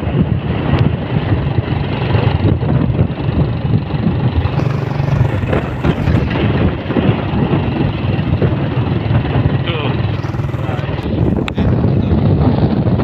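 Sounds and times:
wind buffeting microphone: 0.0 - 13.0
vehicle engine running: 4.2 - 11.8.

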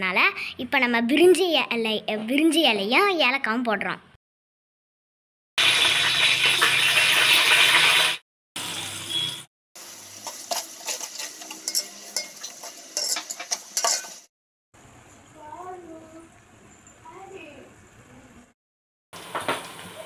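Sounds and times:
onions frying: 5.6 - 15.0, 19.2 - 20.0
spices sizzling in hot oil: 5.6 - 15.4, 19.2 - 20.0
metal spoon scraping pot: 10.2 - 14.3.

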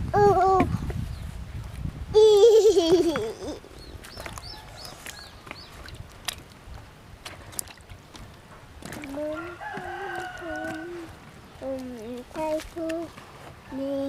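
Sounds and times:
bird chirping: 3.7 - 5.9
water sloshing in a bucket: 3.7 - 13.8
person's voice: 8.9 - 13.1.

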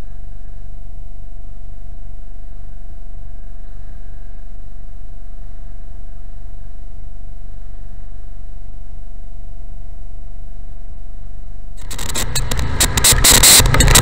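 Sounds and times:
thin steady whine: 0.0 - 14.0
motorcycle engine rumble: 11.8 - 14.0
wind noise: 11.8 - 14.0.

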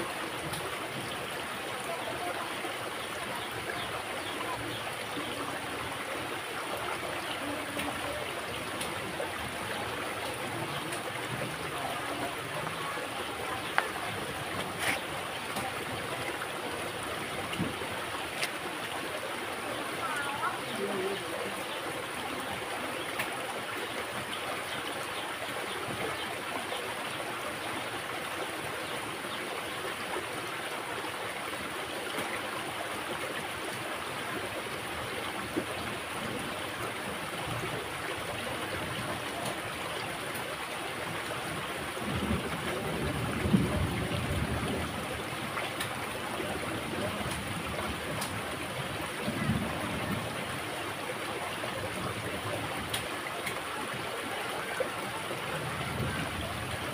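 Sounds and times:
stream flowing: 0.0 - 56.9.

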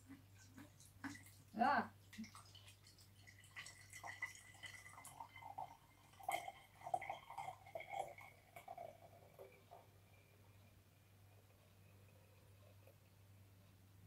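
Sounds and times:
liquid trickling and dripping: 0.0 - 13.4.

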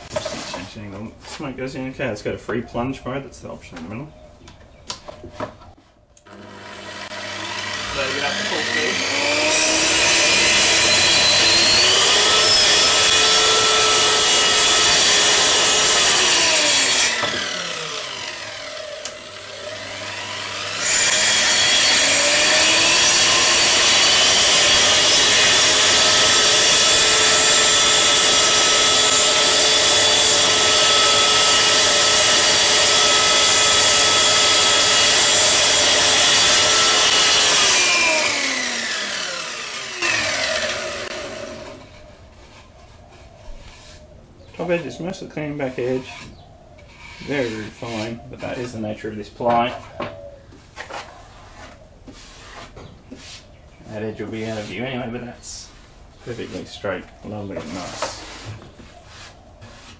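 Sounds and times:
saw motor whirring: 6.3 - 42.6.

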